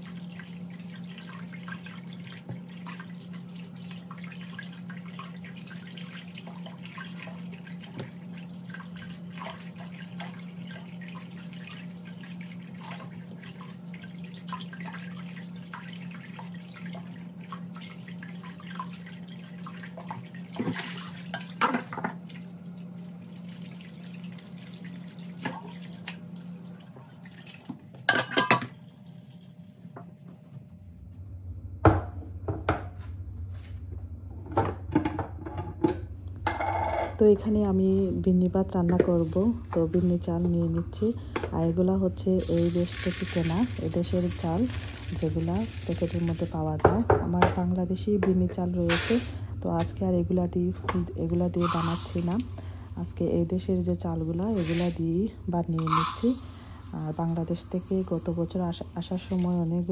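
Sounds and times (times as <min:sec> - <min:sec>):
water splashing and dripping: 0:42.4 - 0:46.6.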